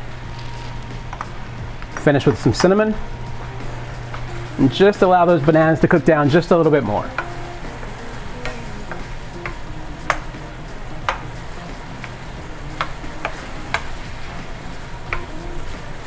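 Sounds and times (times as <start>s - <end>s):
food sizzling in skillet: 0.0s - 16.0s
wooden spoon tapping pan: 8.4s - 10.4s, 12.8s - 14.0s.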